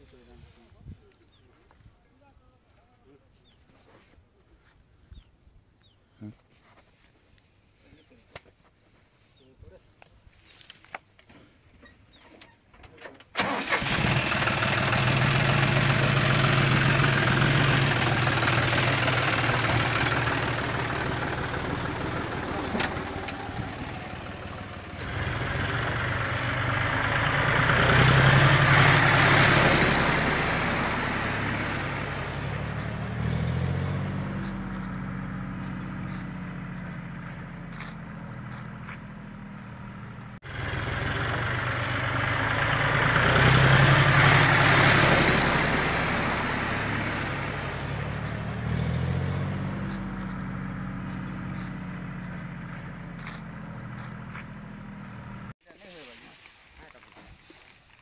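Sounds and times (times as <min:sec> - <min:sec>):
diesel tractor engine: 0:12.4 - 0:55.6.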